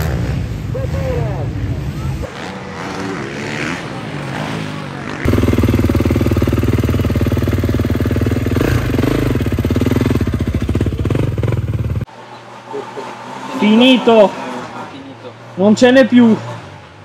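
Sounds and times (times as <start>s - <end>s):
motorcycle engine running: 2.0s - 12.8s.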